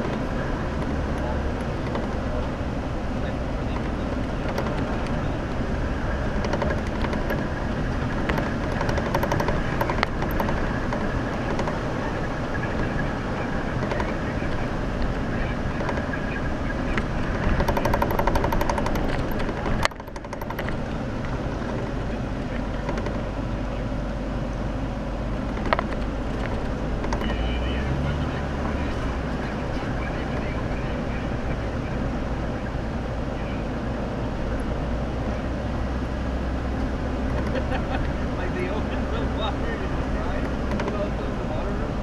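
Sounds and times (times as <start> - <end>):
car engine and tyre noise: 0.0 - 42.0
rattling and knocking: 3.7 - 12.0, 16.9 - 23.3, 25.4 - 27.4.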